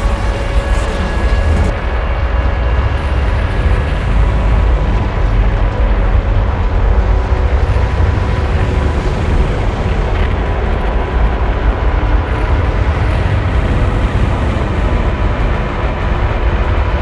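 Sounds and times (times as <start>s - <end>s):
noise techno music: 0.0s - 2.0s.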